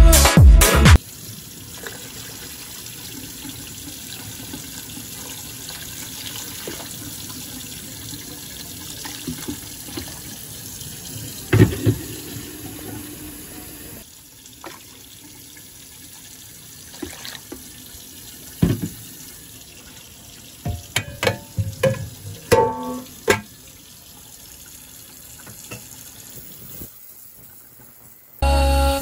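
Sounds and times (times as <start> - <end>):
music: 0.0 - 1.0, 28.4 - 29.0
metal lid knock: 20.7 - 23.4.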